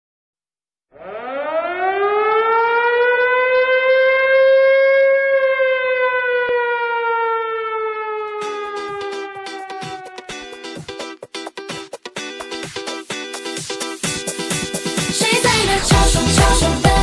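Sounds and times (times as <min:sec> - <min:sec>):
air-raid siren wail: 0:00.9 - 0:10.5.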